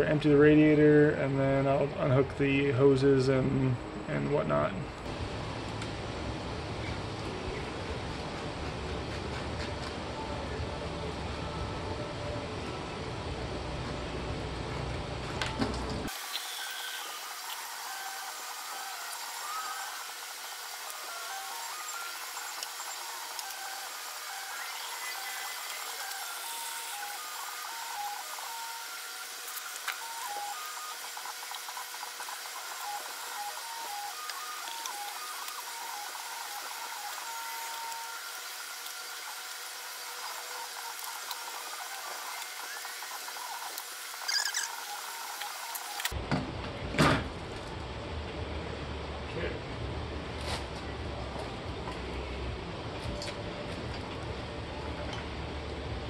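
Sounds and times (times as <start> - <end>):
steady hiss: 16.1 - 46.1.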